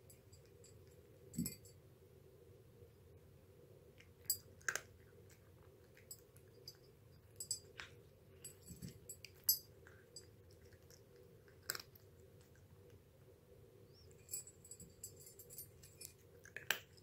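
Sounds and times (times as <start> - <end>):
cat chewing food: 3.9 - 13.1, 15.7 - 17.0.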